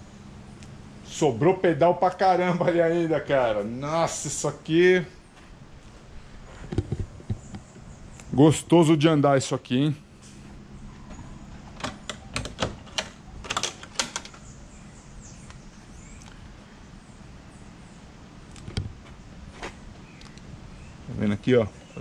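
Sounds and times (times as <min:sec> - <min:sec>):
engine lid latch clicks and knocks: 0:11.7 - 0:14.5.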